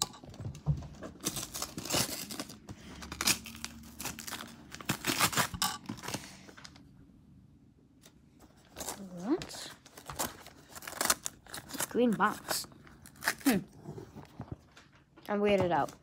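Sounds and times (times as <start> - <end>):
wrapping paper tearing and rustling: 1.1 - 6.8, 8.6 - 14.4.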